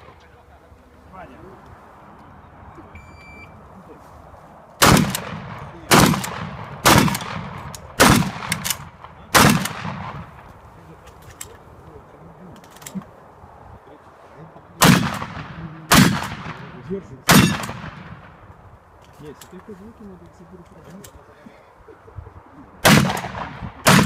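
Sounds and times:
shotgun shots echoing: 4.8s - 10.5s, 14.8s - 18.4s, 22.8s - 24.0s.

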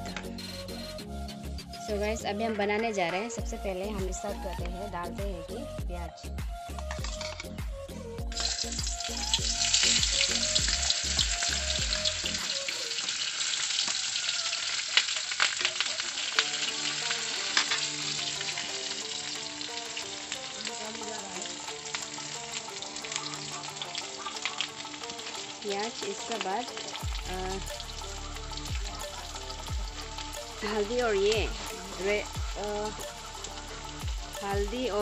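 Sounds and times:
oil popping: 8.3s - 34.6s
onion sizzling in hot oil: 8.3s - 35.0s.

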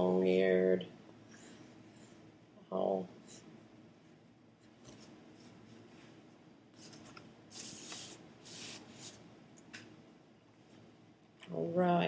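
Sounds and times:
drawing tool rubbing on paper: 6.8s - 9.2s.

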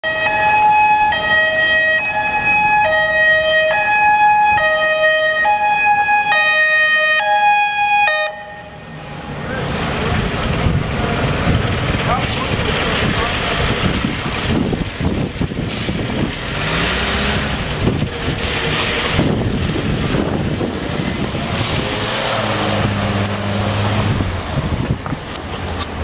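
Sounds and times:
two-tone fire engine siren: 0.0s - 9.5s
truck engine and tyres: 0.0s - 26.0s.

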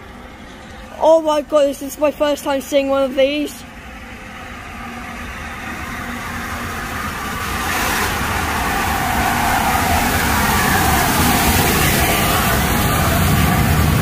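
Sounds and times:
steam train approaching: 0.0s - 14.0s.

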